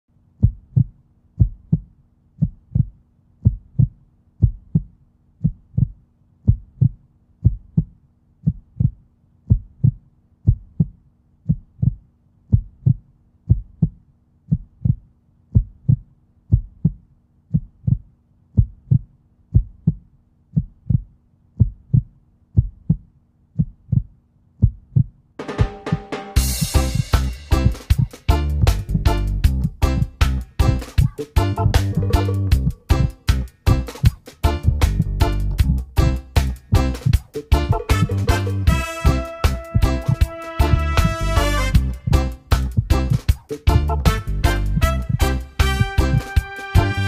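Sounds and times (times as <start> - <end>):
heartbeat thumps: 0.4 - 46.9.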